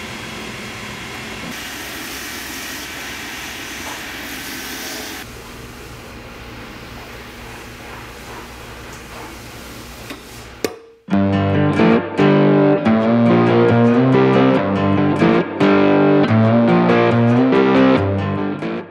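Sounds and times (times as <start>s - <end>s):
buffing wheel whirring: 0.0s - 5.4s
loud guitar music: 11.1s - 18.9s.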